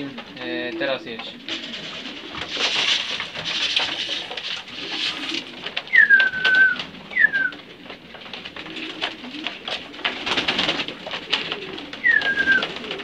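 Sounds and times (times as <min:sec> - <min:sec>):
pigeons cooing: 0:00.0 - 0:13.0
grain pouring into trough: 0:01.5 - 0:05.6
high falling whistles: 0:05.9 - 0:07.5.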